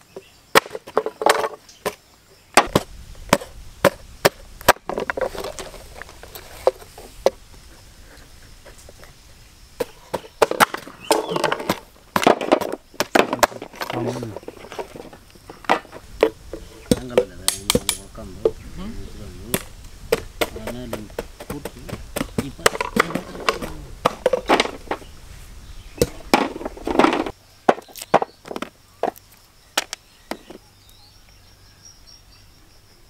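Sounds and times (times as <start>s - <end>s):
coconut being chopped and cracked: 2.6s - 4.8s, 16.9s - 18.0s, 19.5s - 24.8s.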